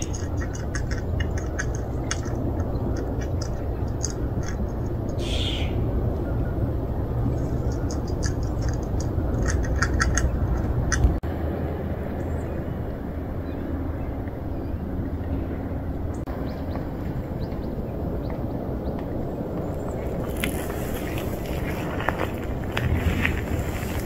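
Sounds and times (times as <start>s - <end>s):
birds chirping: 0.0s - 11.1s, 12.1s - 24.0s
low outdoor rumble: 0.0s - 24.0s
harsh bird call: 5.1s - 6.5s.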